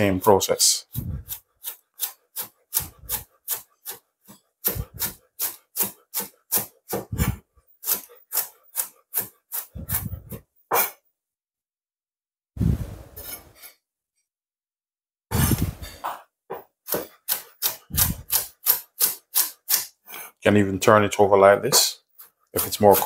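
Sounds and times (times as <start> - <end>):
knife cutting cabbage on board: 0.9 - 11.0, 16.9 - 20.0, 22.2 - 23.0.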